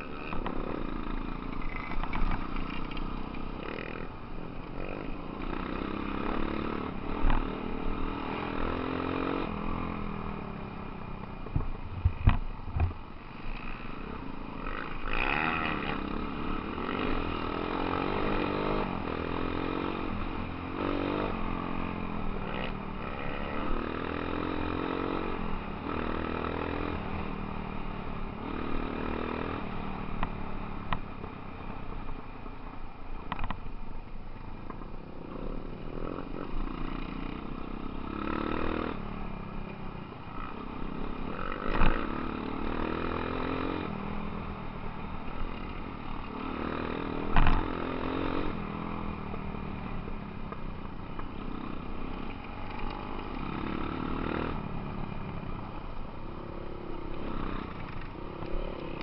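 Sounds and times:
off-road motorcycle engine revving: 0:00.0 - 0:32.5, 0:34.7 - 0:59.0.

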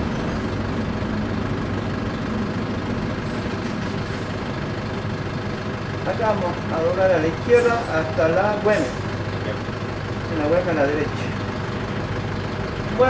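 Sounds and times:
rumble of cabin and road noise: 0:00.0 - 0:09.9
bus engine running: 0:00.0 - 0:13.0.

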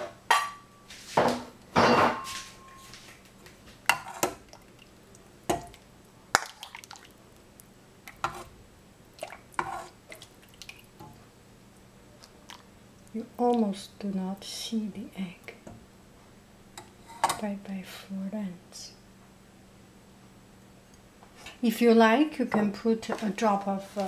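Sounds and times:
broth splashing and dripping: 0:06.4 - 0:07.2, 0:09.1 - 0:11.0.

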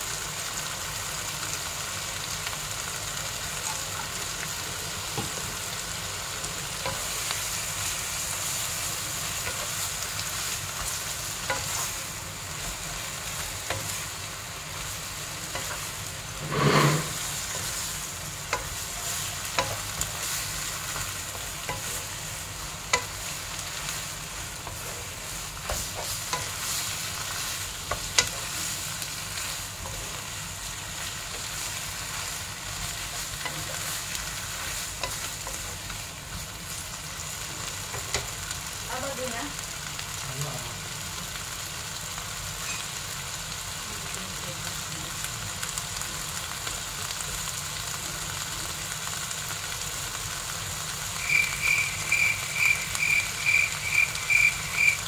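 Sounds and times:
vegetables sizzling in wok: 0:00.0 - 0:55.0
wooden spatula scraping pan: 0:15.6 - 0:17.8.

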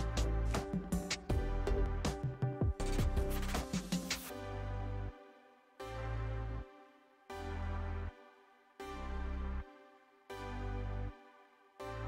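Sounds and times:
chords with deep bass: 0:00.0 - 0:05.1.

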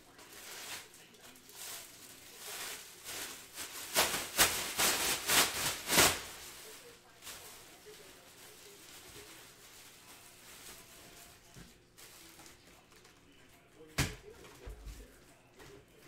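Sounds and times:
plastic packaging crinkling: 0:00.0 - 0:13.4.

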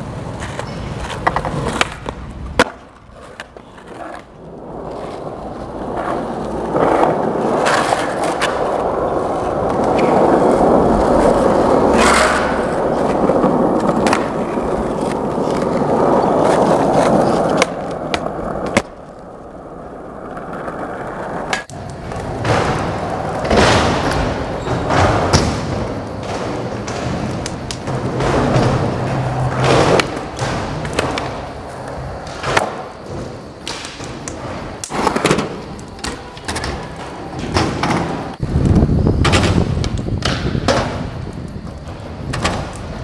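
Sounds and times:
skateboard clacks: 0:00.0 - 0:43.0
skateboard wheels rolling on asphalt: 0:00.0 - 0:43.0.

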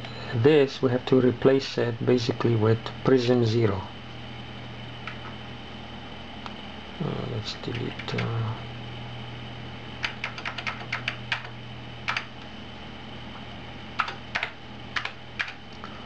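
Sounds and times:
steady low hum: 0:00.0 - 0:16.0
computer keyboard keys clicking: 0:10.0 - 0:11.5, 0:12.1 - 0:12.3, 0:14.0 - 0:15.6.

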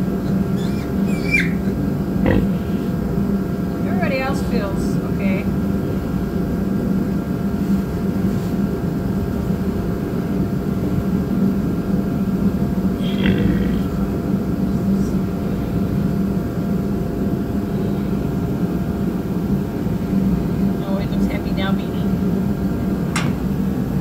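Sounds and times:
low mechanical hum: 0:00.0 - 0:24.0
piglet squealing: 0:00.2 - 0:02.9.

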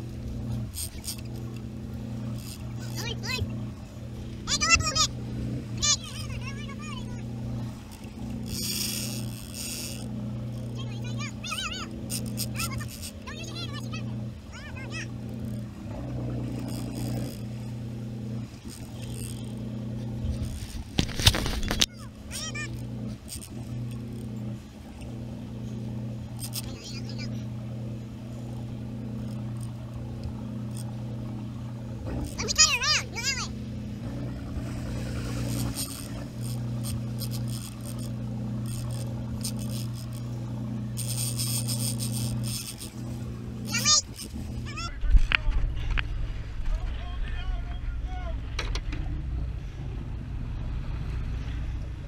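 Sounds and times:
boat engine low hum: 0:00.0 - 0:52.0
high scratchy rasping: 0:02.2 - 0:27.6, 0:32.0 - 0:45.0.

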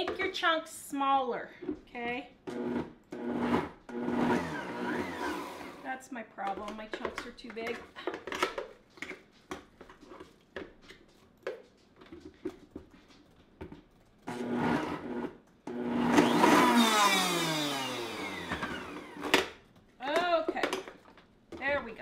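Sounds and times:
blender motor whine: 0:02.5 - 0:05.8, 0:14.3 - 0:19.5.

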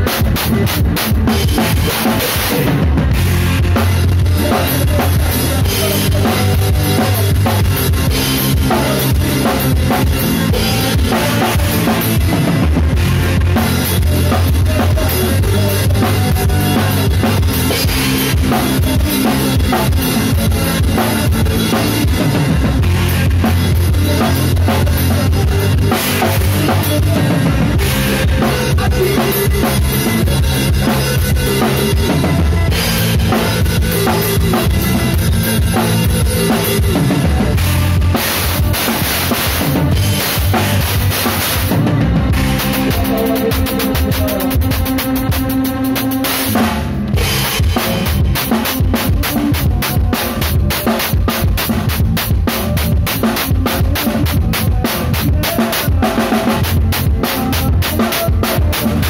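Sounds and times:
held low bass notes: 0:00.0 - 0:45.8
drum kit playing: 0:00.0 - 0:59.0.

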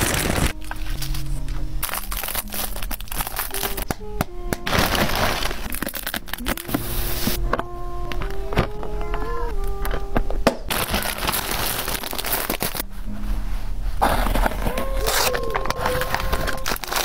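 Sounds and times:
plastic packaging crinkling: 0:00.0 - 0:07.4, 0:10.7 - 0:12.9, 0:14.0 - 0:17.0
soft background music: 0:00.0 - 0:17.0.

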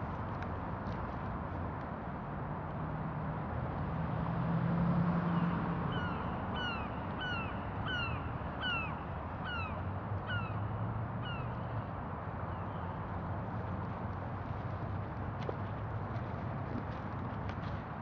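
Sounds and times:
bird calling: 0:05.9 - 0:10.6.

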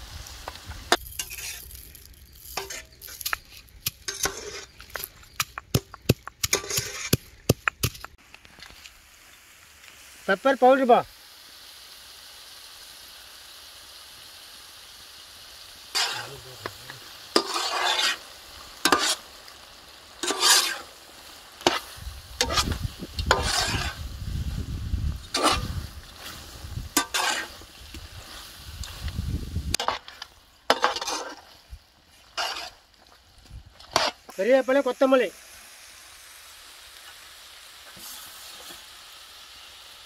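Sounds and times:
meat sizzling on hot pan: 0:00.0 - 0:40.0
scraping stirring strokes: 0:00.5 - 0:08.2, 0:15.9 - 0:19.6, 0:20.2 - 0:24.2, 0:25.2 - 0:29.0, 0:29.7 - 0:34.3.

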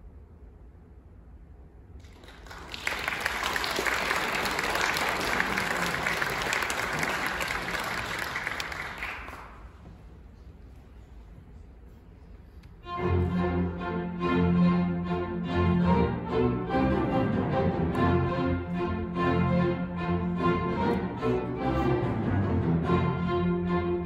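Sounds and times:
audience applauding: 0:02.0 - 0:09.8.

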